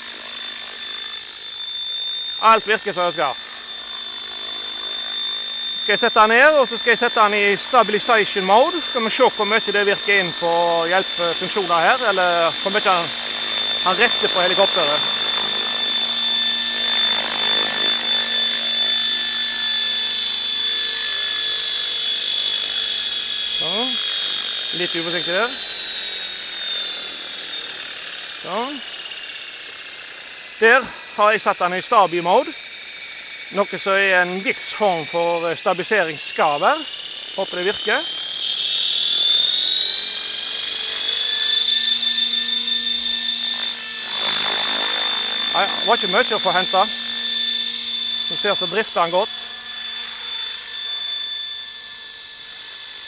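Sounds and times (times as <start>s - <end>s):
rc helicopter rotor whine: 0.0s - 53.0s
lower hum: 2.2s - 20.4s, 36.7s - 51.0s
low hum: 38.9s - 49.6s.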